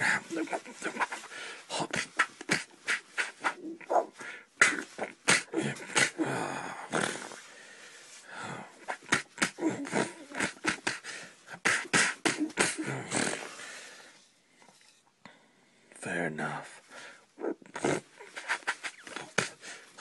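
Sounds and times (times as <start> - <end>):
person making mouth fight sounds: 0.0 - 7.5, 8.6 - 13.7, 17.4 - 20.0.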